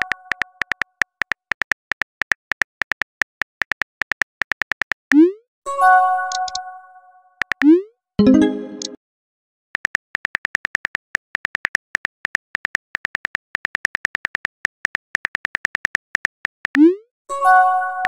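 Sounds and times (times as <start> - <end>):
phone keyboard clicks: 0.0 - 5.0, 6.3 - 6.6, 9.8 - 16.8
message alert: 7.6 - 9.0.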